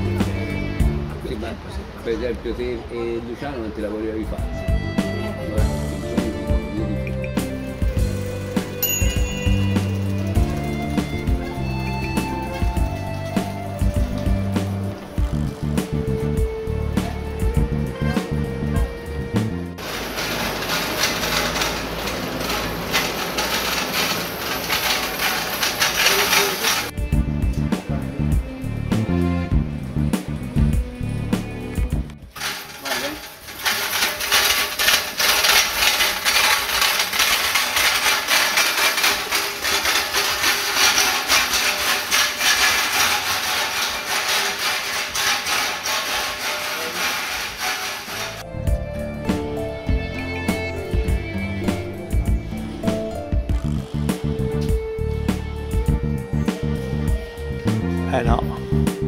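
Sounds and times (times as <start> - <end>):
guitar music: 0.0 - 1.3, 4.5 - 22.8, 48.1 - 59.0
street noise: 0.0 - 59.0
scattered knocks and clatter: 7.4 - 15.8, 19.8 - 27.0, 32.3 - 48.5.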